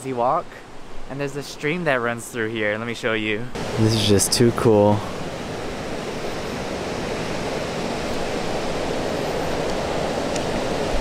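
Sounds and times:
ocean surf breaking: 3.5s - 11.0s
stream rushing over stones: 3.6s - 11.0s.

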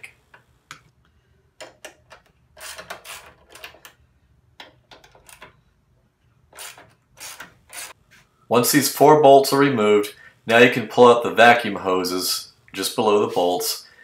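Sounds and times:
socket ratchet clicking: 6.6s - 8.0s.

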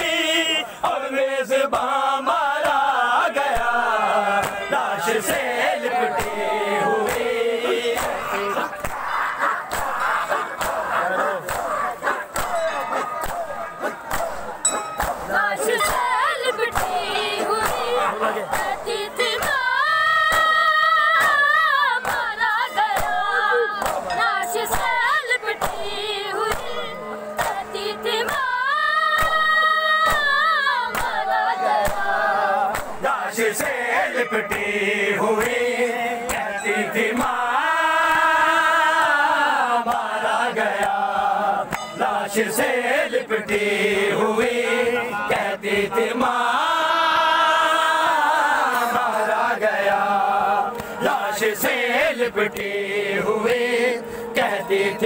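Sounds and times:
men chanting a lament: 0.0s - 55.0s
hands slapping chests: 4.4s - 4.7s, 6.1s - 16.1s, 16.7s - 19.7s, 20.3s - 28.5s, 29.2s - 33.8s, 36.2s - 36.5s.

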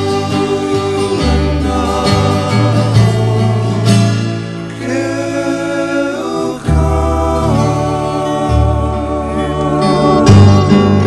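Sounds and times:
acoustic guitar music: 0.0s - 11.0s
person singing: 0.0s - 11.0s.

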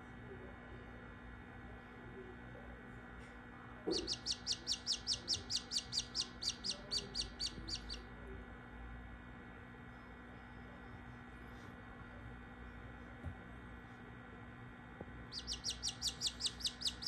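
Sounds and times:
chick peeping: 3.9s - 8.0s, 15.3s - 17.0s.

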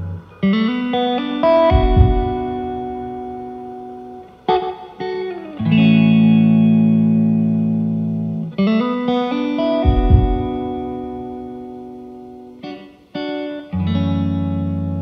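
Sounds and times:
deep low hit: 1.7s - 3.2s, 9.9s - 11.2s.

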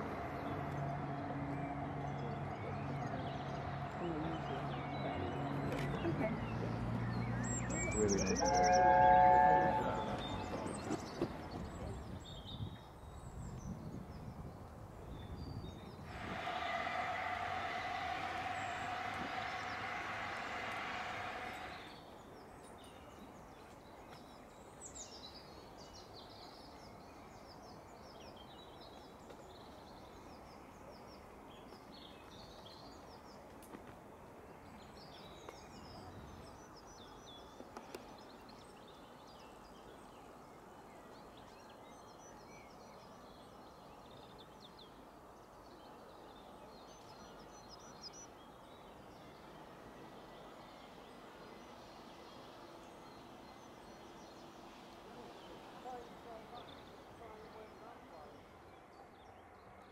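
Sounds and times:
songbirds chirping and trilling: 0.0s - 59.9s.

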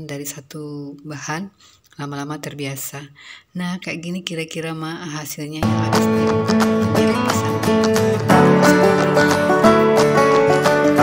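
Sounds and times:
plucked acoustic guitar music: 5.6s - 11.0s.

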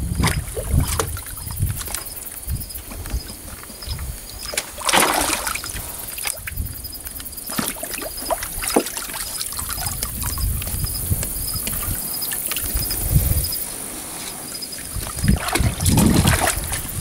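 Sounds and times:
dog splashing in water: 4.5s - 6.3s, 7.4s - 10.4s, 14.9s - 17.0s.

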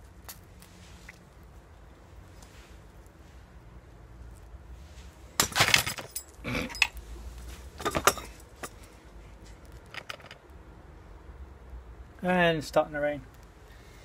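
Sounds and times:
camp stool cracking and rattling: 5.4s - 7.0s, 9.8s - 10.4s.

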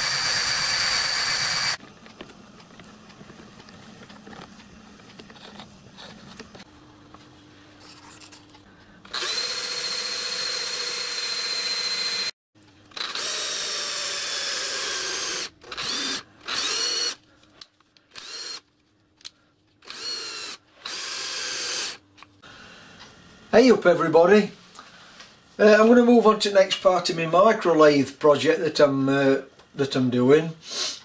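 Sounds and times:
power tool motor whining: 0.0s - 1.8s, 9.0s - 12.3s, 12.9s - 17.2s, 18.1s - 18.6s, 19.8s - 22.0s.

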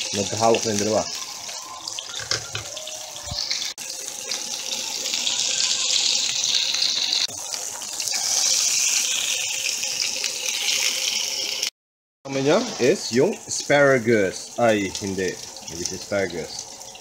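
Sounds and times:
steaks sizzling in a pan: 0.0s - 11.7s.

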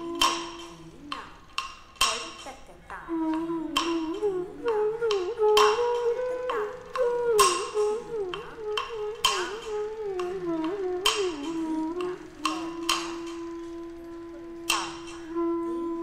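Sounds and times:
ringing percussion strikes: 0.0s - 2.7s
ornamented melody line: 0.0s - 16.0s.

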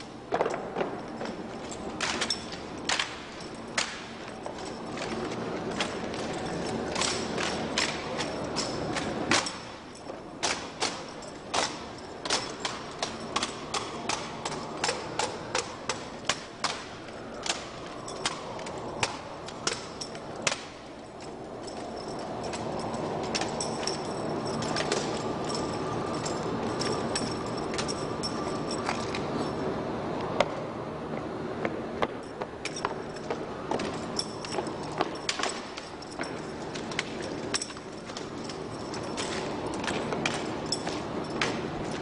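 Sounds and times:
background noise: 0.0s - 42.0s
rifles slapped and struck: 2.0s - 4.2s, 10.4s - 20.8s.

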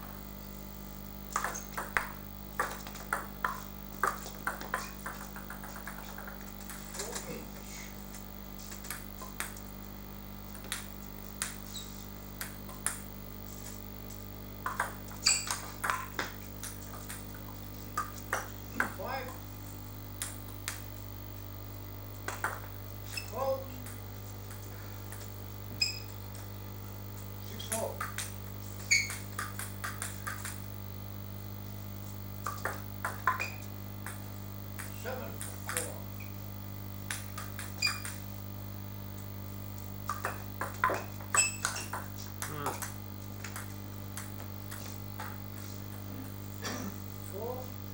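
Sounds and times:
steady low hum: 0.0s - 47.9s
table tennis ball knocks: 1.3s - 6.8s, 14.6s - 17.2s, 22.3s - 23.2s, 32.4s - 34.2s
bat hits and table bounces: 1.3s - 7.4s, 12.4s - 13.1s, 14.6s - 17.4s, 18.0s - 19.1s, 22.2s - 25.2s, 27.8s - 30.6s, 32.4s - 34.2s, 37.1s - 38.2s, 40.1s - 46.8s
short squeaks: 15.2s - 15.7s, 25.8s - 26.2s, 28.8s - 29.2s, 37.8s - 38.1s, 41.3s - 41.9s.

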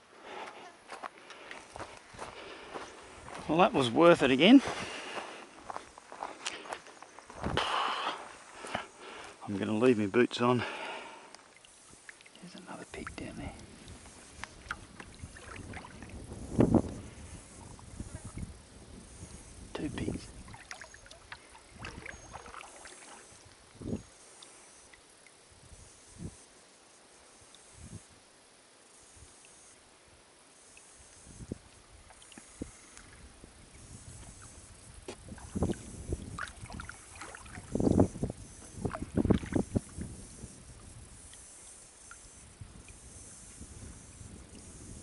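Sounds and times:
faint steady hiss: 0.0s - 45.0s
water drips and clicks: 11.3s - 16.2s, 20.5s - 23.6s
kayak paddle swishing in water: 20.3s - 23.4s, 35.1s - 40.2s.

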